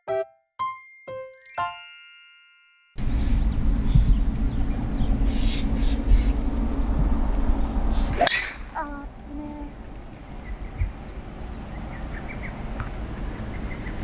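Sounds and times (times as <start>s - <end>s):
golf ball struck by driver: 8.1s - 8.8s.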